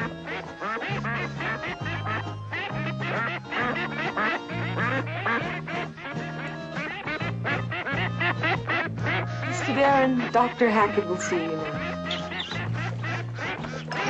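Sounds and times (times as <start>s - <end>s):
background music with bass: 0.0s - 14.0s
ducks quacking and peeping: 0.0s - 14.0s.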